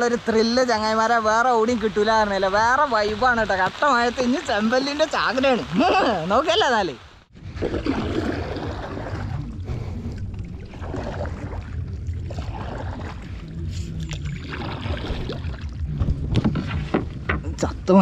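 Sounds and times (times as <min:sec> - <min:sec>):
water lapping against boat: 0:07.3 - 0:17.9.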